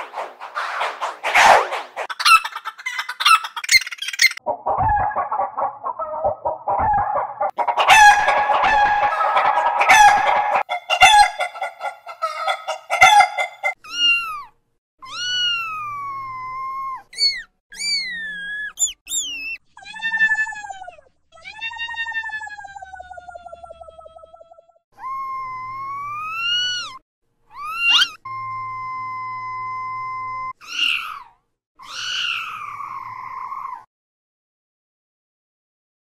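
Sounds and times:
altered chicken clucking: 0:00.1 - 0:13.8
altered rooster crowing: 0:04.6 - 0:11.4.

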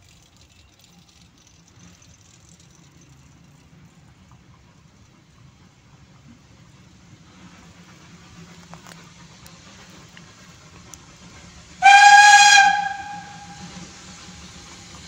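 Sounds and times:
shrill steam locomotive whistle: 0:11.8 - 0:14.2.

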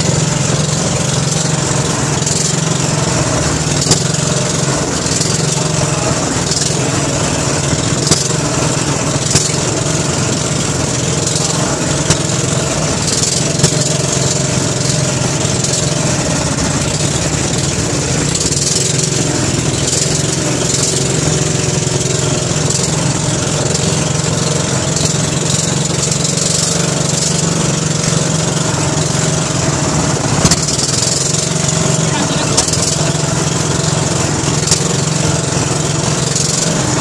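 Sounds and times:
boat engine droning: 0:00.0 - 0:37.0
sharp knocks: 0:07.6 - 0:22.0, 0:30.3 - 0:33.2.

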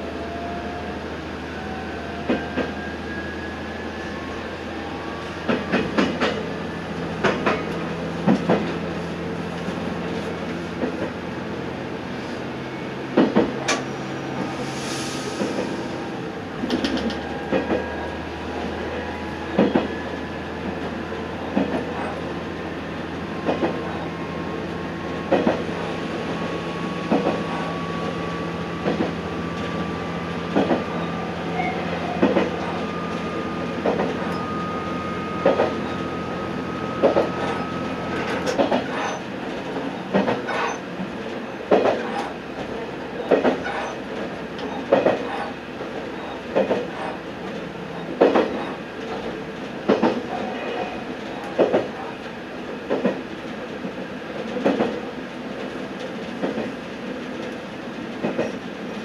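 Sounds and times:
train wheels clicking on rail joints: 0:05.4 - 0:06.5, 0:07.1 - 0:11.2, 0:13.1 - 0:14.6, 0:16.6 - 0:18.0, 0:19.5 - 0:19.9, 0:20.6 - 0:22.2, 0:23.4 - 0:24.0, 0:25.1 - 0:34.5, 0:35.4 - 0:36.1, 0:37.0 - 0:52.1, 0:52.7 - 0:59.0.

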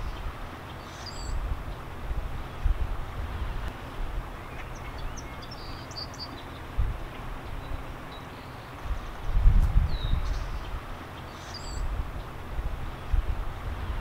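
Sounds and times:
faint bird chirps: 0:00.0 - 0:01.8, 0:09.8 - 0:12.3.

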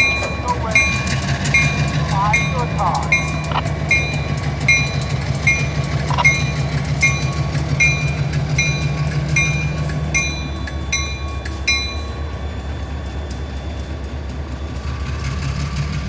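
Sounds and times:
crossing warning bell ringing: 0:00.0 - 0:16.0
diesel locomotives rumbling: 0:00.0 - 0:16.0.

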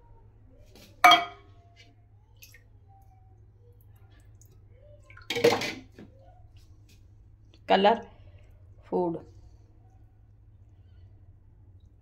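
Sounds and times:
faint low hum: 0:00.0 - 0:12.0
utensil clinking on metal pot: 0:01.0 - 0:01.4.

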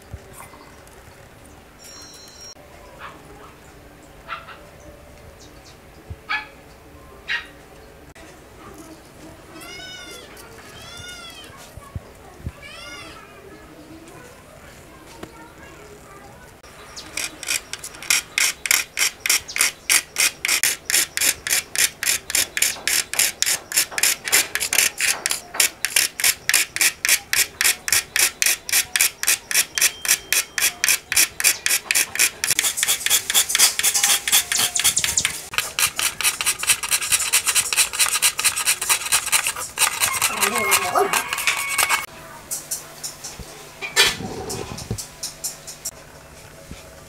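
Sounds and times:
file rasping on plastic: 0:17.1 - 0:42.1.

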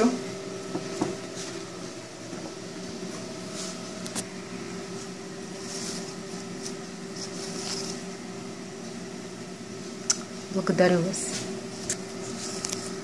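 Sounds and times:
electrical hum of a machine: 0:00.0 - 0:13.0
leaves rustling in a plastic crate: 0:04.8 - 0:08.2.

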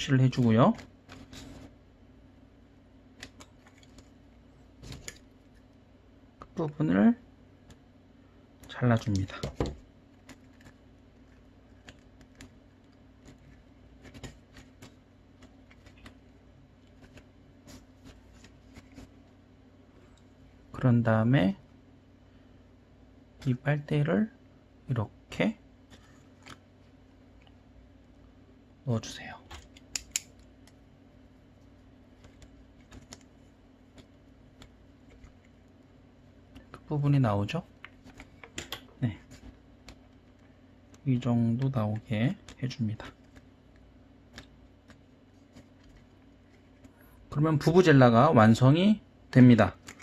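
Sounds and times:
paper rustling: 0:09.6 - 0:19.3.

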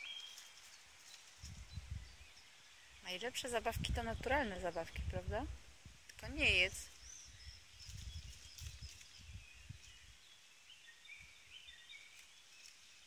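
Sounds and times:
distant birds chirping: 0:06.1 - 0:13.0.

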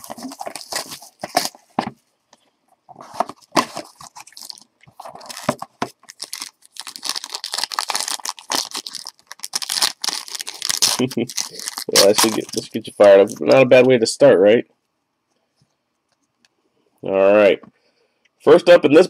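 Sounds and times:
plastic wrapping tearing and crinkling: 0:00.0 - 0:01.6, 0:03.2 - 0:13.4.

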